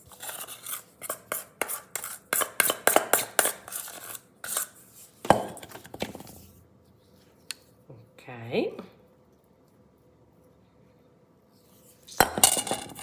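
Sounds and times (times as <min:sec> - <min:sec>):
metal spoon scraping a steel bowl: 0:00.0 - 0:04.8.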